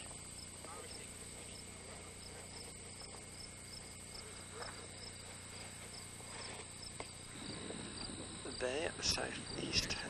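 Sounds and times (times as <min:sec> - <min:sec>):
crickets chirping: 0:00.0 - 0:10.0
faint low hum: 0:00.0 - 0:10.0.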